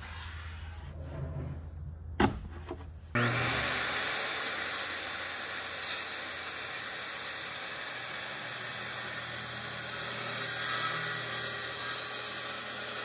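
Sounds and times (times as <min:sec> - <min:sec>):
circular saw cutting plywood: 0:03.2 - 0:13.0.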